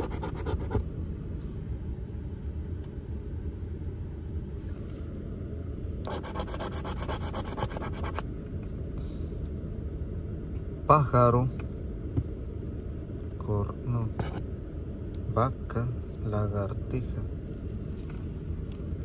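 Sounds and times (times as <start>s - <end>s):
coin scratching lottery ticket: 0.0s - 0.8s, 6.1s - 8.2s
steady low rumble: 0.0s - 19.0s.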